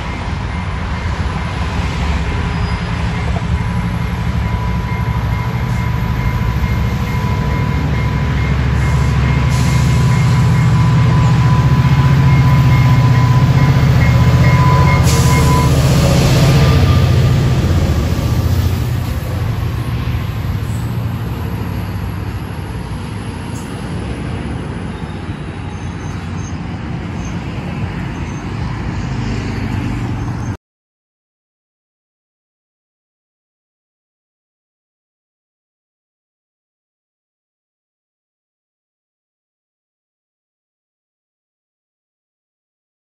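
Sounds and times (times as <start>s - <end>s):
steady high tone: 0.0s - 24.1s
locomotive engine rumble: 0.0s - 30.5s
train wheels on rails: 0.0s - 30.5s.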